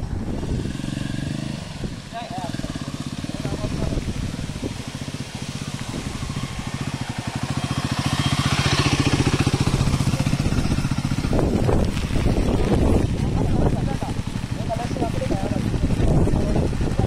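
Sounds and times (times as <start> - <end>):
motorcycle engine at low revs: 0.0 - 17.0.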